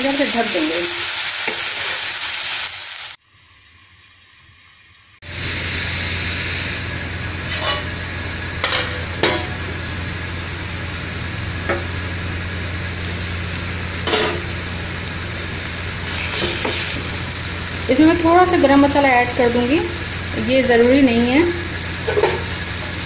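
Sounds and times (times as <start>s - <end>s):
frying hiss: 0.0s - 23.0s
low hum: 5.2s - 23.0s.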